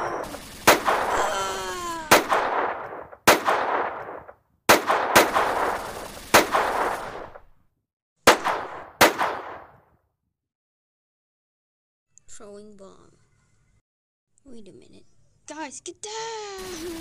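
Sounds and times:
echoing gunshots: 0.0 - 7.5, 8.3 - 9.8
short falling wail: 1.1 - 2.2.

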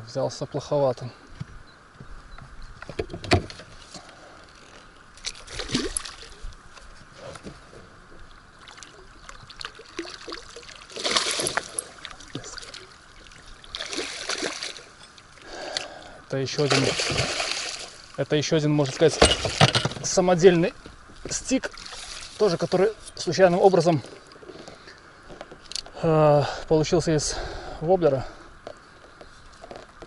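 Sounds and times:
water splashing: 5.1 - 20.7, 21.3 - 24.3.

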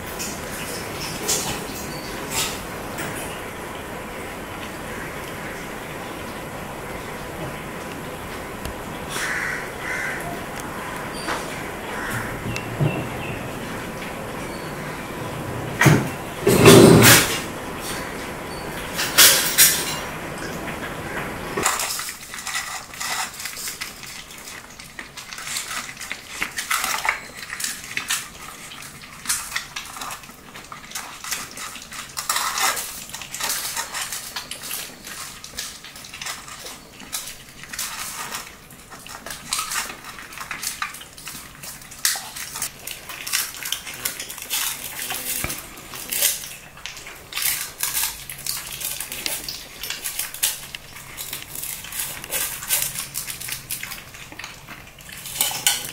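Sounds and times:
puppies chewing: 0.0 - 55.9
kibble clinking in metal bowls: 0.2 - 3.4, 16.0 - 20.2, 21.6 - 55.9.

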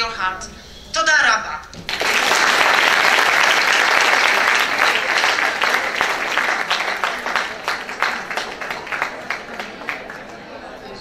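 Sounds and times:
audience applauding: 1.9 - 10.5.

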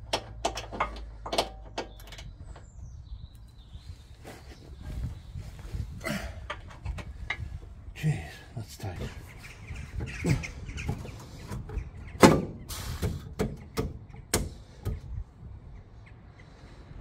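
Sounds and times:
metal knocks and clanks: 0.0 - 2.6.

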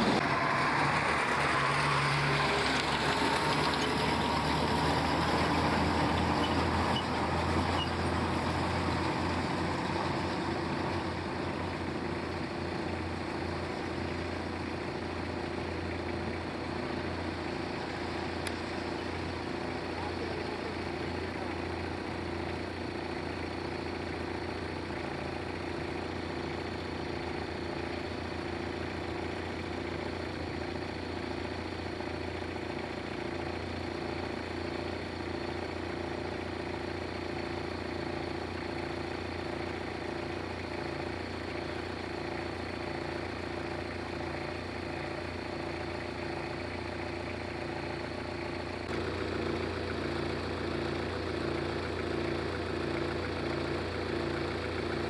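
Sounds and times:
vehicle engine running: 0.0 - 55.0.

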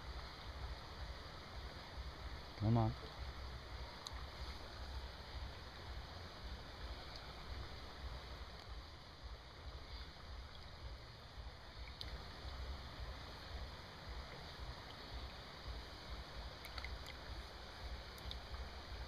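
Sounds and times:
river water rushing: 0.0 - 19.0.

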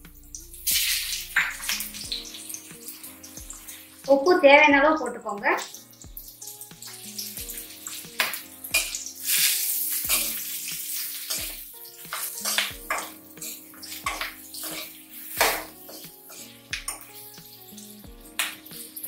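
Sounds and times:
background music: 0.0 - 19.0
spoon scraping metal pan: 5.6 - 19.0.

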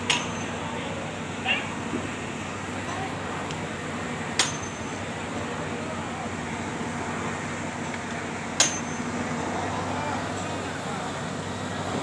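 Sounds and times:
murmur of distant voices: 0.0 - 12.0.

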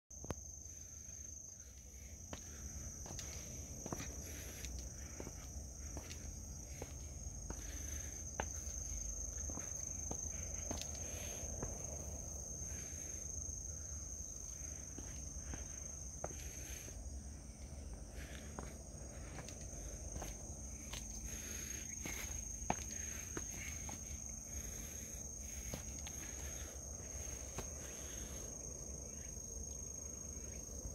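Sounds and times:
footsteps on leafy stone trail: 2.2 - 11.9, 17.9 - 28.3.

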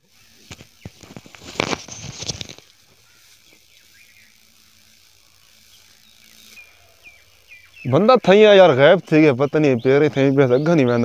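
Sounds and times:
rustling of grass and foliage: 0.0 - 11.0
faint bird chirps: 2.8 - 11.0.

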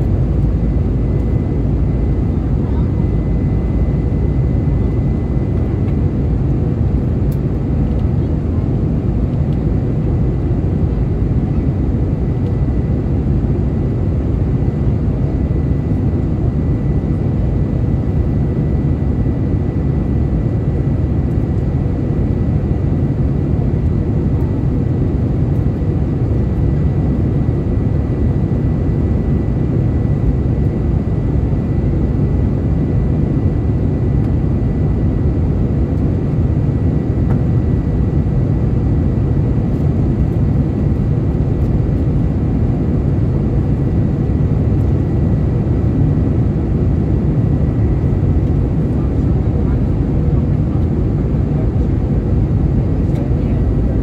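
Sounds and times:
thin steady whine: 0.0 - 7.8
airliner cabin roar: 0.0 - 54.0.

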